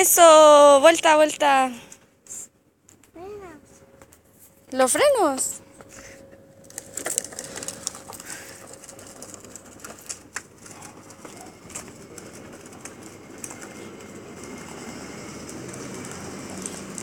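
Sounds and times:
bicycle rolling over asphalt: 4.8s - 17.0s.

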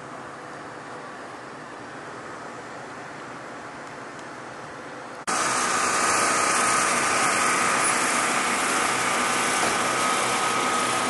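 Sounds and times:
high whine: 5.3s - 11.0s.

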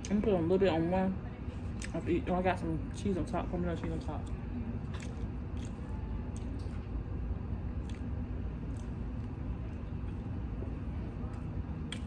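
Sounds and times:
low room rumble: 0.0s - 12.0s
person chewing: 4.2s - 6.8s, 7.8s - 9.4s.

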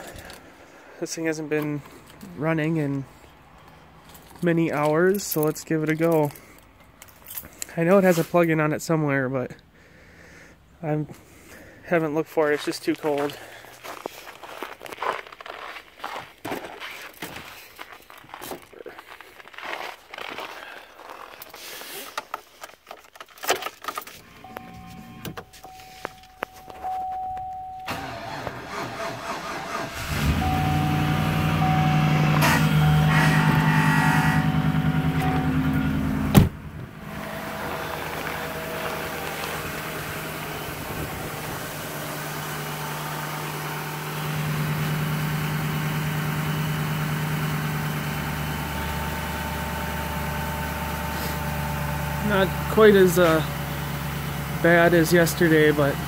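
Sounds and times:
car chime: 24.4s - 28.0s, 30.4s - 36.5s
starter motor cranking: 27.9s - 30.6s
truck engine idling: 27.9s - 56.0s
door banging shut: 36.3s - 36.6s.

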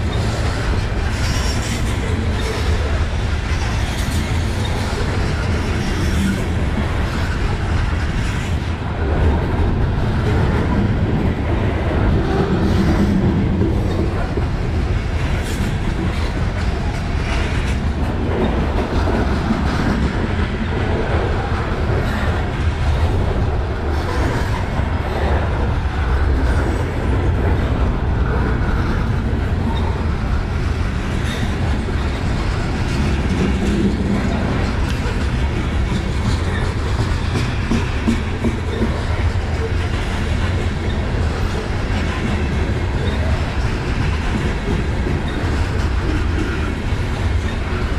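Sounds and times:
steel wheels rumbling on rail: 0.0s - 47.9s
wheels clicking over rail joints: 28.2s - 47.9s.

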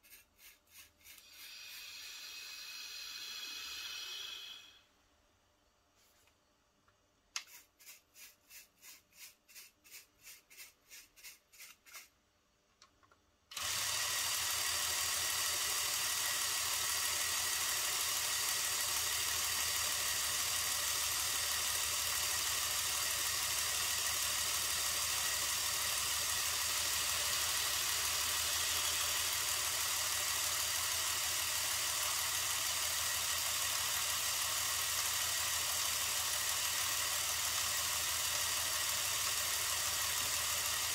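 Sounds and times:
air compressor running: 1.1s - 4.9s, 13.5s - 40.9s.

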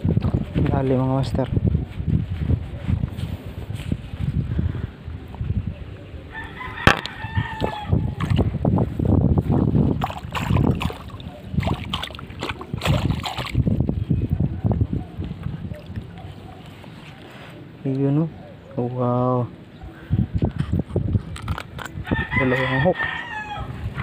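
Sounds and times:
rooster crowing: 6.3s - 8.2s, 22.0s - 23.9s.

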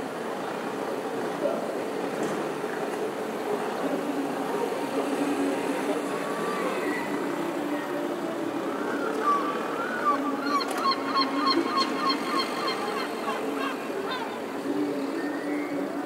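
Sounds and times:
murmur of city traffic: 0.0s - 16.0s
gull calling: 9.2s - 14.4s.

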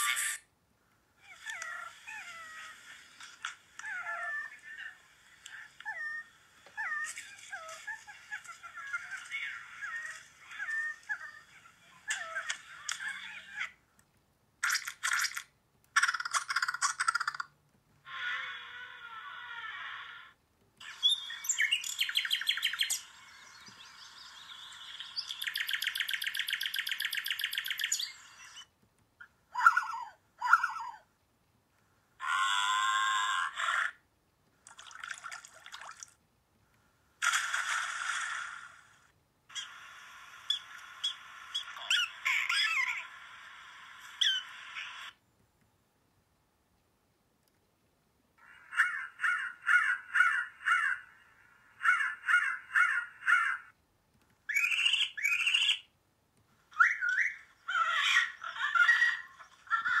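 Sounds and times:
parrot squawks: 40.4s - 43.2s, 44.1s - 45.2s, 48.4s - 53.8s, 54.5s - 55.9s, 56.7s - 60.0s
prairie dog chirping barks: 40.5s - 43.1s, 48.4s - 53.8s, 54.5s - 55.9s, 56.7s - 60.0s.

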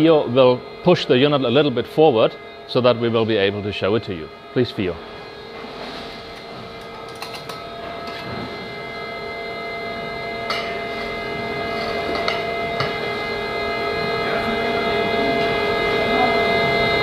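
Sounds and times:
machinery hum with high whine: 0.0s - 17.0s.

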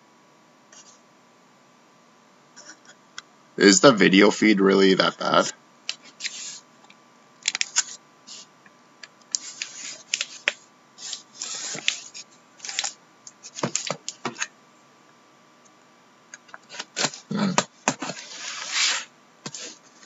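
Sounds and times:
cardboard box scraping and rustling: 18.0s - 19.9s.

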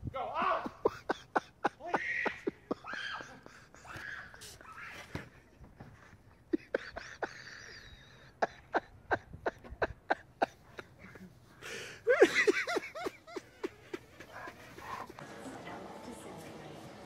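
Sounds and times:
person laughing: 0.4s - 4.6s, 6.5s - 14.3s.

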